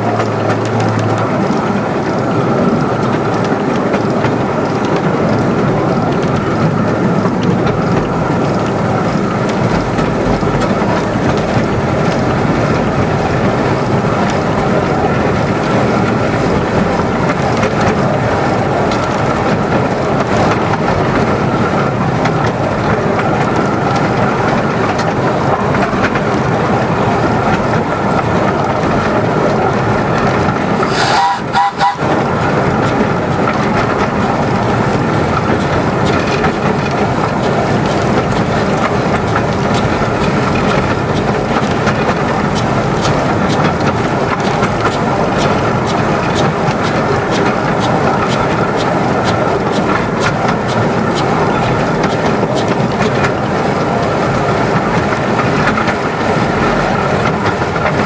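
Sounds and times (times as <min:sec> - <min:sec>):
train wheels rumbling on track: 0:00.0 - 0:58.0
steam hiss: 0:30.8 - 0:32.2.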